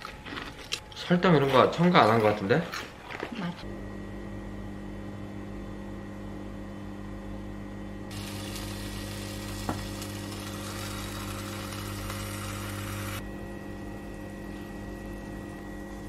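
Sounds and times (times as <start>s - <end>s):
cooktop humming with high whine: 0.0s - 16.0s
food sizzling in a pan: 8.1s - 13.2s.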